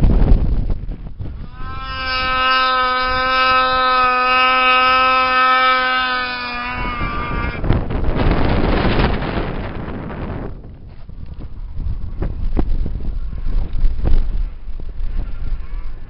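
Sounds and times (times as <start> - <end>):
wind buffeting microphone: 0.0 - 16.0
snowmobile engine high whine: 1.2 - 10.5.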